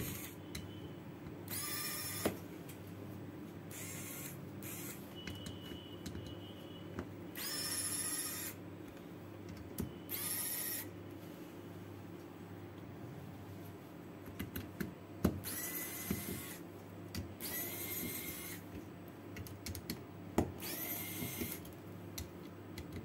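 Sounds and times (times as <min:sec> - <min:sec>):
electric screwdriver whirring: 0:01.5 - 0:02.4, 0:03.7 - 0:05.0, 0:07.4 - 0:08.6, 0:10.1 - 0:10.9, 0:15.4 - 0:16.6, 0:17.4 - 0:18.6, 0:20.6 - 0:21.7.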